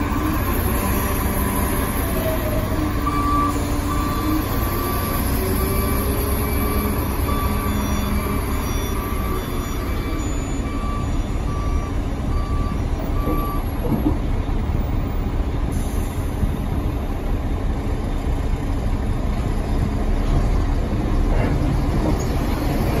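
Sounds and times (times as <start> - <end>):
diesel engine rumbling: 0.0 - 23.0
reversing alarm beeps: 0.1 - 14.7.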